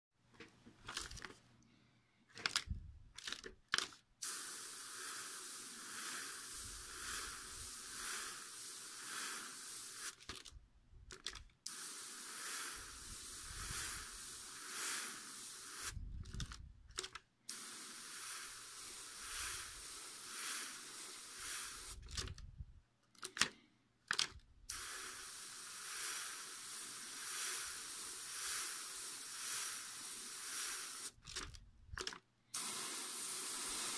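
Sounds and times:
airbrush hissing: 4.2s - 10.2s, 11.7s - 16.0s, 17.5s - 22.0s, 24.7s - 31.2s, 32.6s - 33.9s.

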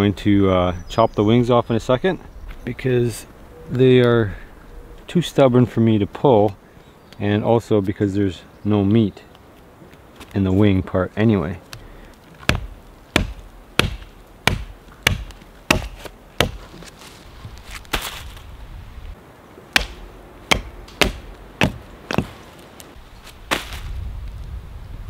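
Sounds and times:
rustle on dry leaves: 9.4s - 25.0s
blade chopping through bone: 12.5s - 16.6s, 19.8s - 22.4s.

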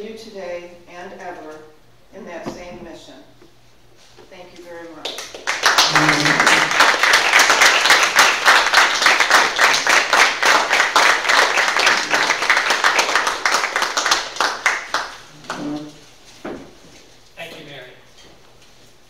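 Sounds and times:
audience applauding: 5.2s - 15.8s.

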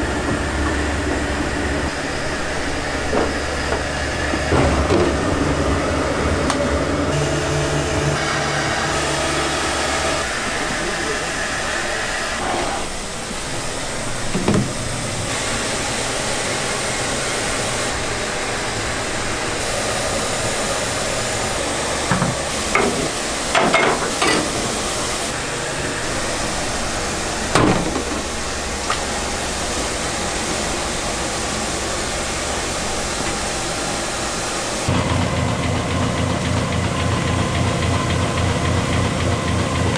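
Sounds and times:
machine and workshop noise: 0.0s - 39.9s
metal knocks and clanks: 3.1s - 7.1s, 22.1s - 24.7s.

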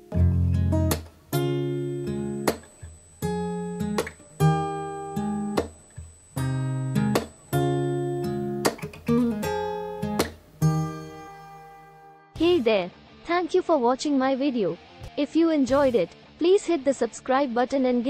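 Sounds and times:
acoustic guitar chords: 0.0s - 13.4s.

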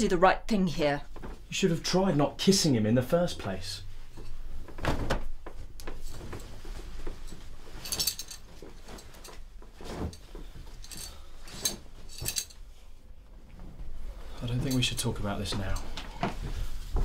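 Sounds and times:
clothes rustling: 0.8s - 2.6s, 3.2s - 17.0s.

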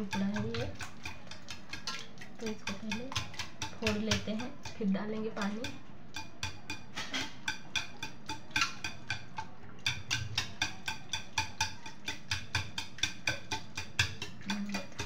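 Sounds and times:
whisk clicking against metal pot: 0.0s - 15.0s.

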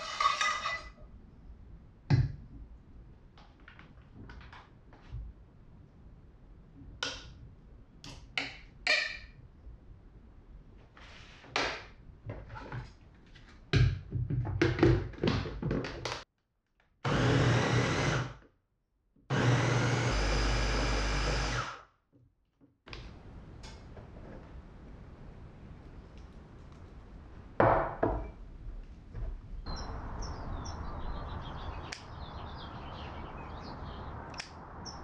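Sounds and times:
electric blender running: 17.1s - 18.3s, 19.3s - 21.6s.

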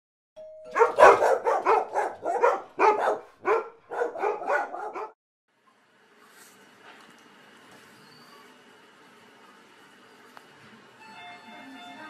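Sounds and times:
dog barking rapidly: 0.8s - 5.2s.

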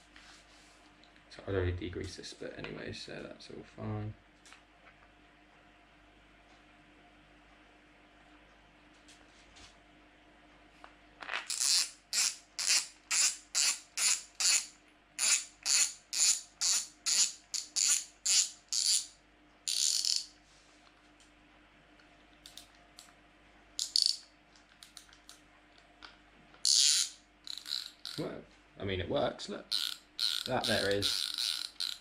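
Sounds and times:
fishing reel drag clicker ratcheting: 19.7s - 20.3s, 23.8s - 24.2s, 26.6s - 28.2s, 29.7s - 32.0s.

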